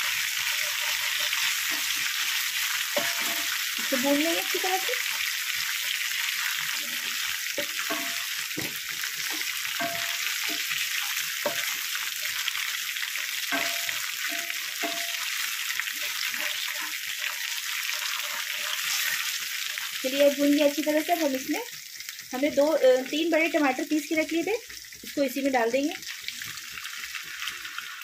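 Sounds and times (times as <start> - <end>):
wooden spatula scraping a pan: 0.0 - 12.4, 13.5 - 20.0
paste sizzling in hot oil: 0.0 - 28.0.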